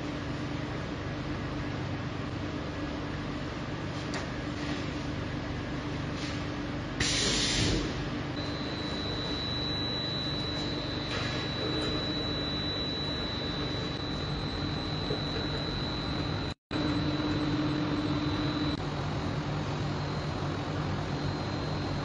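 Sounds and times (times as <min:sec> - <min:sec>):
machinery hum: 0:00.0 - 0:22.0
thin high whine: 0:08.4 - 0:22.0.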